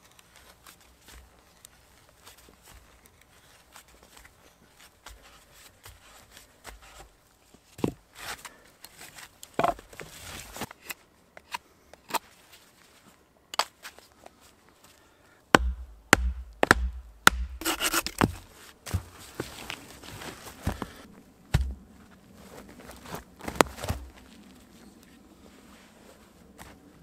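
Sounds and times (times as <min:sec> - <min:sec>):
heavy wooden knocks: 0:15.6 - 0:17.6, 0:21.5 - 0:21.8
low thuds: 0:15.6 - 0:17.6, 0:21.5 - 0:21.9
knife shaving wood: 0:16.6 - 0:19.4.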